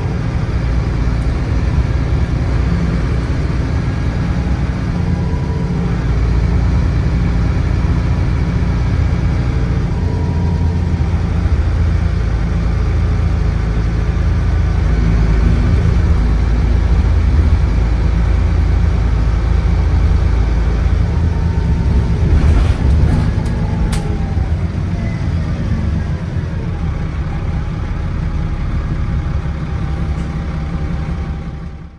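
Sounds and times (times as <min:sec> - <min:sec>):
bus diesel engine running: 0:00.0 - 0:31.9
high-pitched whine: 0:04.7 - 0:22.8.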